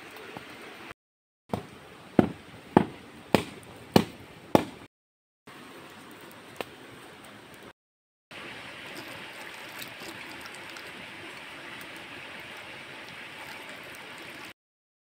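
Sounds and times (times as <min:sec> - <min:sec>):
liquid boiling in a pot: 0:08.3 - 0:14.6.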